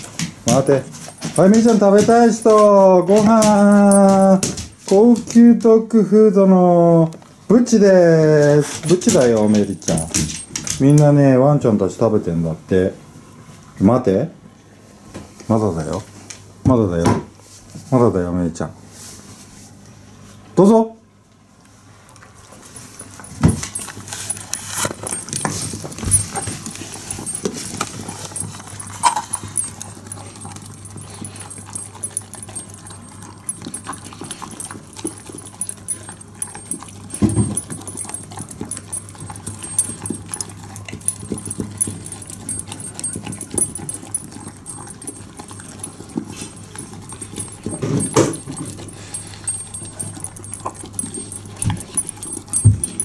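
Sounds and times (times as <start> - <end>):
dog chewing and licking food: 0.0 - 6.0, 7.1 - 11.2, 22.0 - 53.0.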